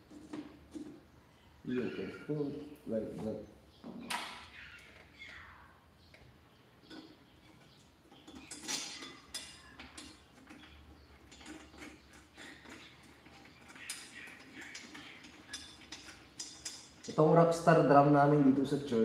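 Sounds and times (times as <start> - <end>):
metal drum hardware clicks and scrapes: 6.9 - 19.0.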